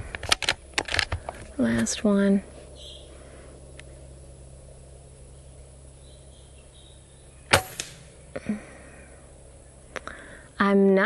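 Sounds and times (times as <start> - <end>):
air rifle shot: 7.5 - 8.2
fainter second crack: 7.5 - 8.6.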